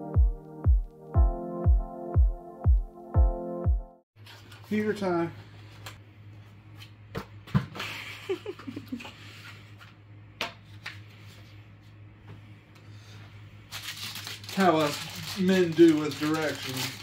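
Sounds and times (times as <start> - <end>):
cardboard packaging rustling: 13.7 - 17.0.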